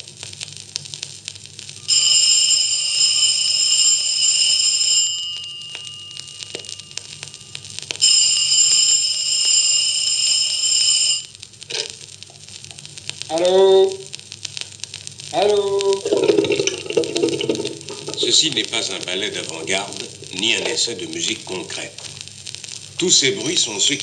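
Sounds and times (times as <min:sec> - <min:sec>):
vinyl surface crackle: 0:00.0 - 0:24.0
electric bell ringing: 0:01.8 - 0:11.3, 0:16.0 - 0:21.0.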